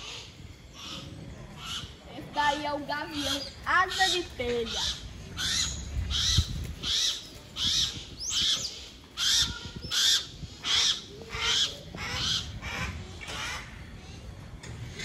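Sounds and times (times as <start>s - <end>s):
hawks rasping calls: 3.1s - 13.8s.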